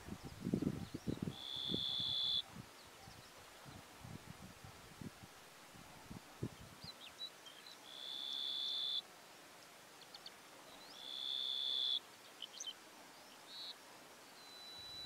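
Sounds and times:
bird chirps: 0.8 - 3.3, 6.8 - 9.0, 10.0 - 15.0
thin faint whistle: 14.4 - 15.0.

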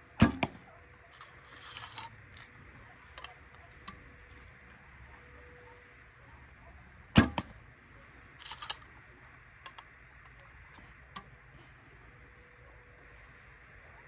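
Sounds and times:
arrow clicking on bow: 0.2 - 4.5, 8.4 - 8.9.

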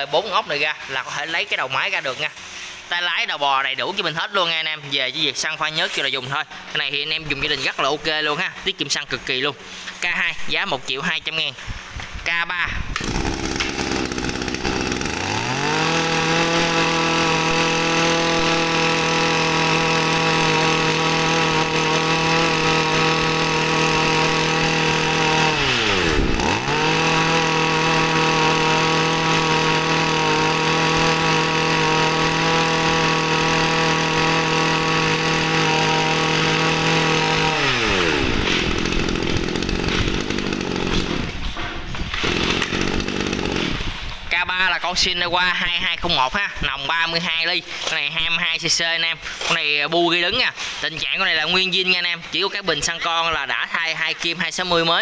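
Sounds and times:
brush-cutter engine revving: 12.9 - 41.5, 42.1 - 44.1.

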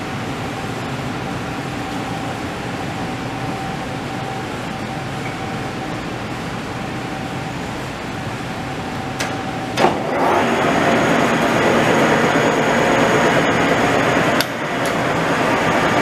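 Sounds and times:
lathe running: 8.6 - 16.0.

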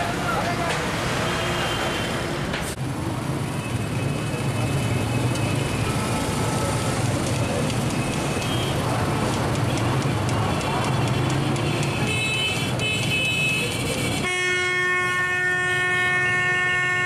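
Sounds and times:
heavy road traffic rumble: 0.0 - 17.0.

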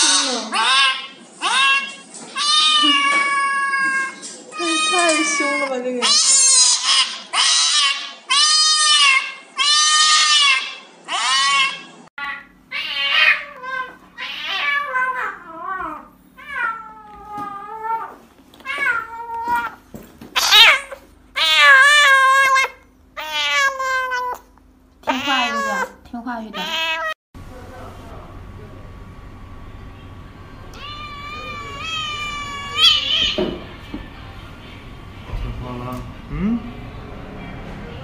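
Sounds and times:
kitten yowling: 0.0 - 19.8, 20.4 - 24.5, 25.1 - 26.0, 26.6 - 27.2, 30.8 - 33.4.

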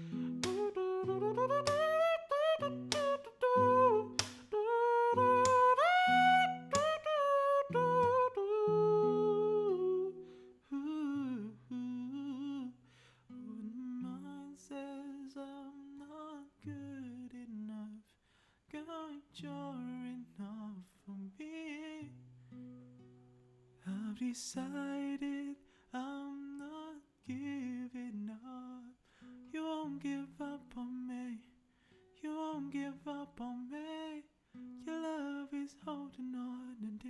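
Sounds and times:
classical guitar chords: 0.0 - 10.6.

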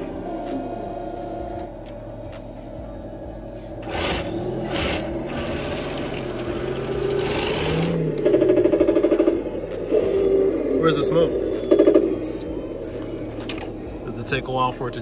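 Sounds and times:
toy tank motors whirring: 3.8 - 9.3.

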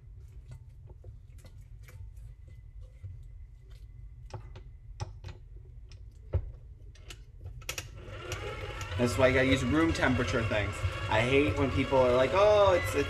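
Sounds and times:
mixer motor hum: 7.8 - 13.0.

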